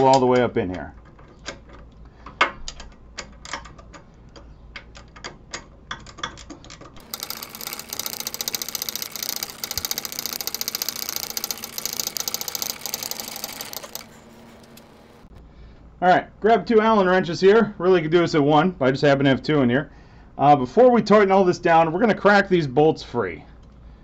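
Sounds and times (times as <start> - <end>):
hand ratchet clicking: 7.0 - 15.1.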